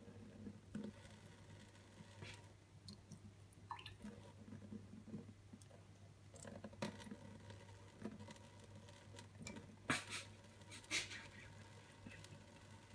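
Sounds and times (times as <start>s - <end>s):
water trickling: 2.8s - 4.4s.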